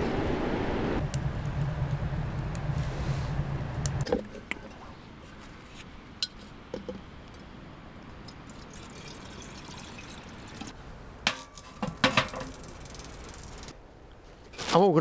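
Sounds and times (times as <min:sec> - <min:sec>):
water trickling into kettle: 0:08.2 - 0:10.7
kettle clanking on metal stove: 0:11.3 - 0:12.6.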